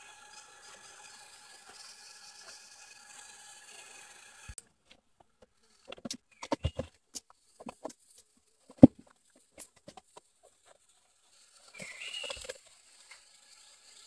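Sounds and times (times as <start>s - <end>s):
forest background hiss: 5.6s - 14.0s.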